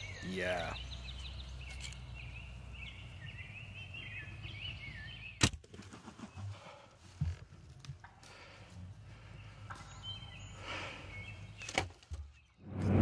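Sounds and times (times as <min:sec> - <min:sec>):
small bird singing: 0:00.0 - 0:05.4, 0:09.1 - 0:12.6.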